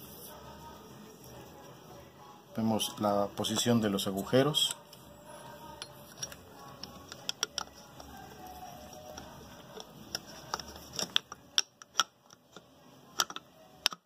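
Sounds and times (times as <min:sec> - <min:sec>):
metal parts clicking and tapping: 0:03.4 - 0:14.0.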